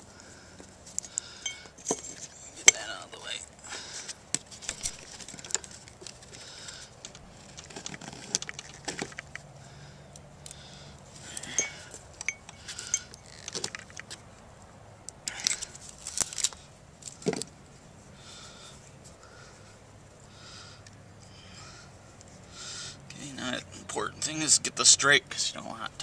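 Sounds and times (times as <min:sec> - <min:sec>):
small metallic clicks and scrapes: 0:04.0 - 0:09.5, 0:11.3 - 0:14.4.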